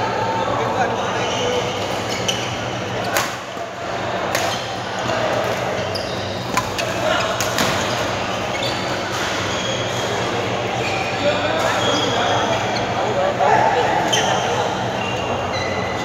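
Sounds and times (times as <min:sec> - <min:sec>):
voices in a hall: 0:00.0 - 0:16.0
shoe squeaks on court floor: 0:01.2 - 0:02.7, 0:05.8 - 0:10.0
badminton rackets hitting shuttlecock: 0:03.1 - 0:03.5, 0:06.4 - 0:07.8.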